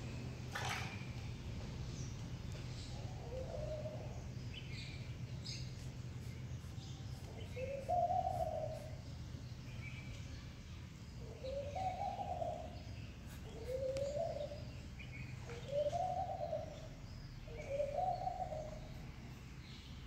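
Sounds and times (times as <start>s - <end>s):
low background hum: 0.0s - 20.0s
bird hooting and cooing: 2.9s - 4.3s, 7.4s - 9.0s, 11.2s - 12.8s, 13.4s - 14.7s, 15.4s - 19.0s.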